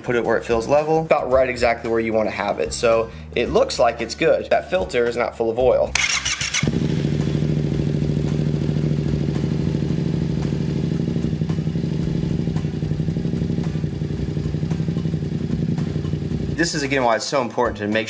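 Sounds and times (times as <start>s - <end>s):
motorcycle engine idling: 6.0s - 17.3s.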